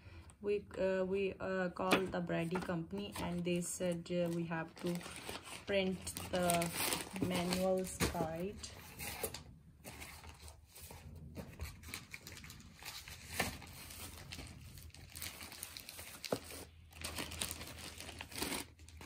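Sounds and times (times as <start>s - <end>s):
paper packaging rustling: 2.5s - 19.0s.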